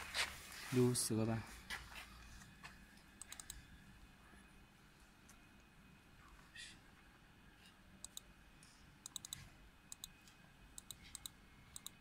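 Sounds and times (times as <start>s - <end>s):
laptop keyboard clicks: 9.1s - 10.1s.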